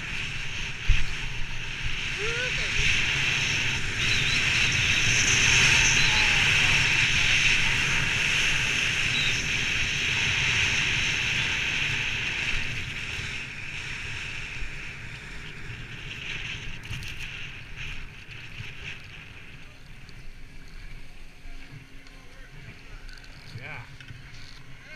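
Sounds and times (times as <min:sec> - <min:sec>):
skis hissing on snow: 0:00.0 - 0:16.5
wind rushing over microphone: 0:00.0 - 0:21.9.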